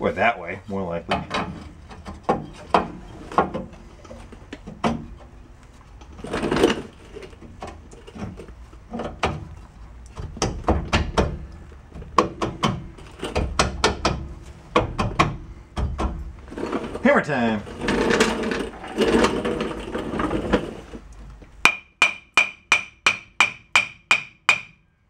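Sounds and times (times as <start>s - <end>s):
metal scraping: 16.4s - 21.0s.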